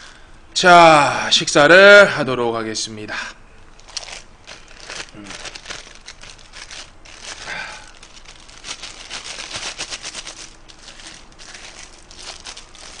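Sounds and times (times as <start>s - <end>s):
plastic gloves crinkling: 3.6s - 13.0s.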